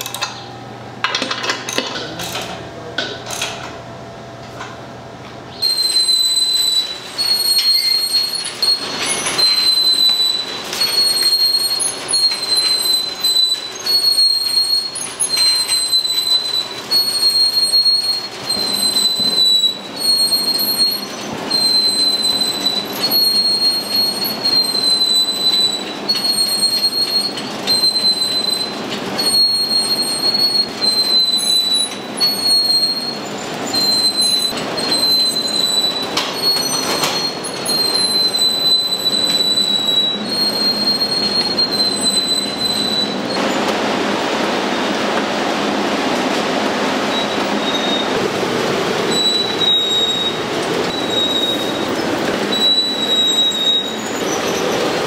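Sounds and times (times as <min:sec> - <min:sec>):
kitchen clatter: 0:00.0 - 0:03.8
machine high-pitched squeal: 0:05.5 - 0:43.8, 0:45.6 - 0:55.0.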